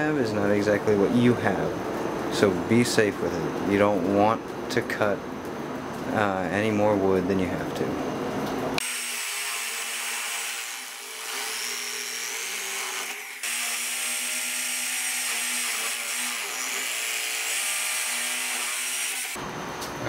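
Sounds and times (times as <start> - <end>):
drill bit cutting into wood: 8.8 - 19.4.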